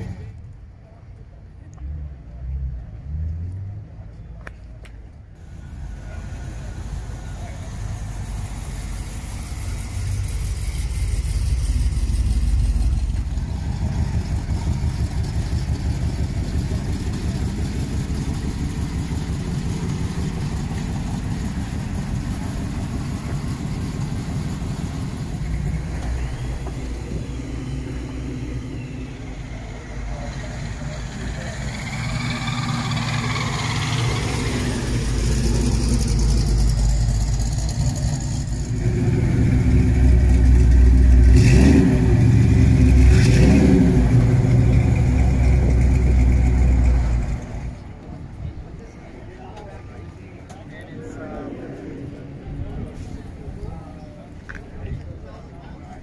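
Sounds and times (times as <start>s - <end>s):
car engine revving and idling: 5.4s - 48.4s.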